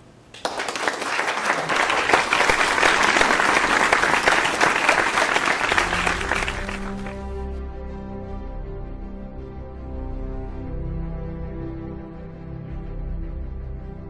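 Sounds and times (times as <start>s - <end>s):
audience applauding: 0.3s - 7.4s
music: 1.8s - 14.0s.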